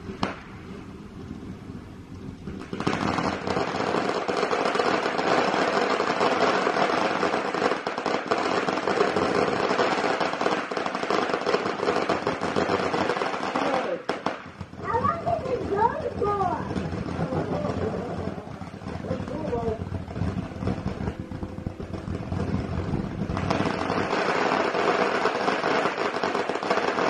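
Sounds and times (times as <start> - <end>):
firework fountain crackling: 0.0 - 27.0.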